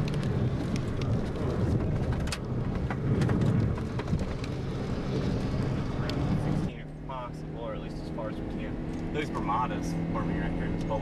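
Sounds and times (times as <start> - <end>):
road and engine rumble: 0.0 - 11.0.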